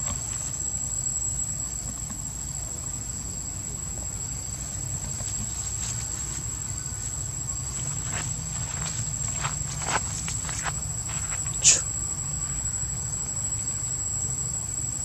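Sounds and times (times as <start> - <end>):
insects droning: 0.0 - 15.0
rustling leaves: 4.9 - 11.6.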